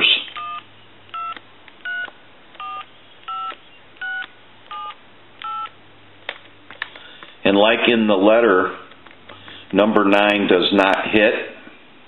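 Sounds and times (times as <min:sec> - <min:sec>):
touch-tone keypad beeps: 0:00.4 - 0:05.8.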